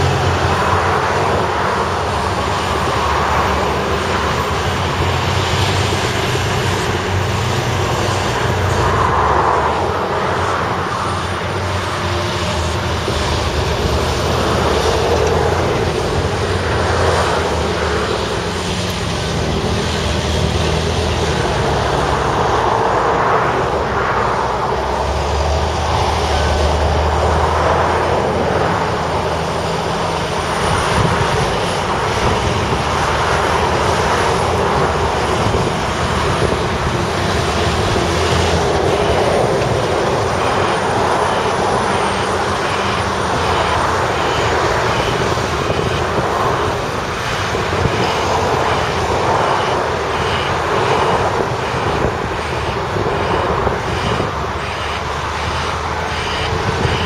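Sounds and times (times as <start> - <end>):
heavy diesel engines: 0.0 - 57.0.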